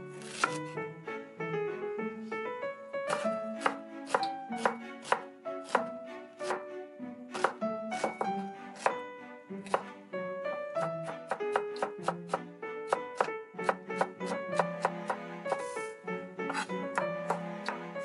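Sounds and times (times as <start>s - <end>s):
background music: 0.0s - 18.0s
knife chopping on wooden board: 0.2s - 0.7s, 3.1s - 6.6s, 7.4s - 9.0s, 9.6s - 9.9s, 10.8s - 15.8s, 16.4s - 17.8s.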